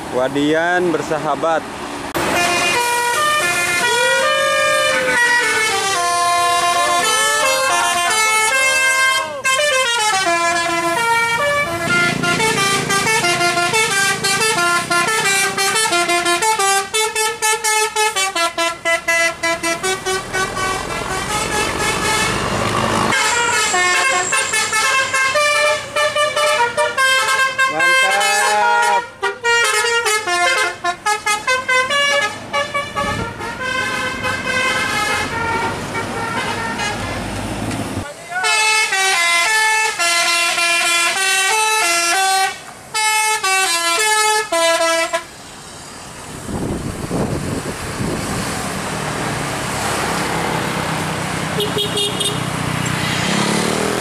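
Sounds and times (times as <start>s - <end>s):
musical bus horns playing melodies: 2.2s - 45.5s, 49.9s - 54.0s
diesel bus engine running: 18.2s - 27.3s.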